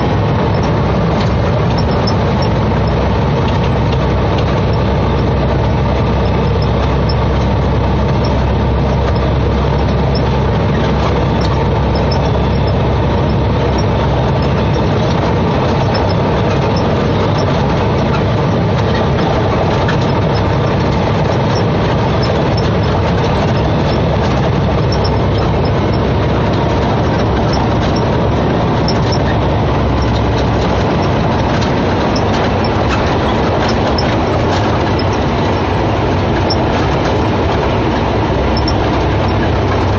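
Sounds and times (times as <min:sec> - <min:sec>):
diesel truck engine running: 0:00.0 - 0:39.9
road noise: 0:00.0 - 0:39.9.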